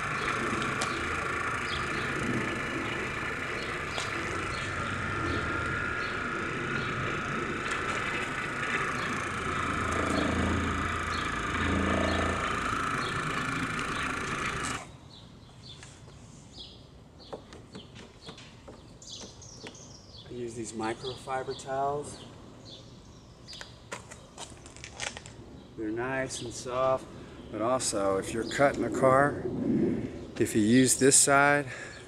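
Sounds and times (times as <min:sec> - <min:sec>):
electric polisher running: 0:00.0 - 0:14.9.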